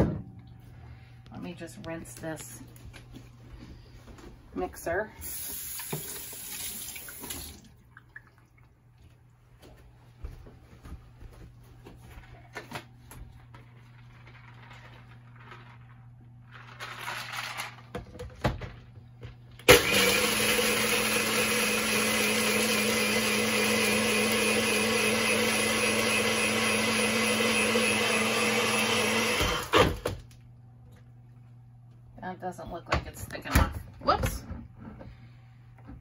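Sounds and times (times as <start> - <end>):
blender motor crushing ice: 19.6 - 30.2.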